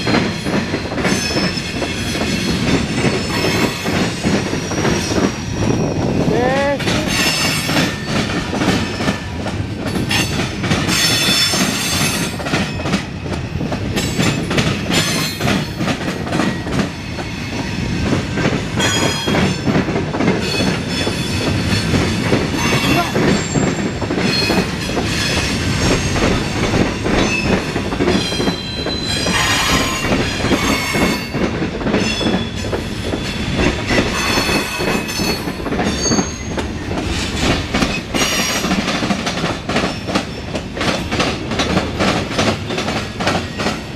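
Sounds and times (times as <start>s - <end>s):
train wheels clicking over rail joints: 0.0s - 43.9s
steel wheel squeal: 33.9s - 36.6s.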